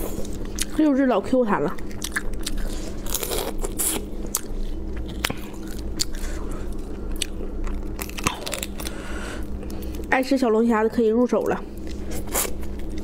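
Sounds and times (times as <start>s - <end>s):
crayfish shells cracking: 7.2s - 9.0s.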